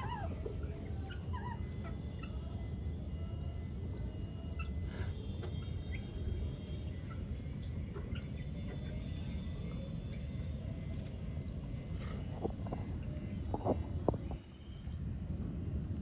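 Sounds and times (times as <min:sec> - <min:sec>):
steady low rumble: 0:05.8 - 0:16.0.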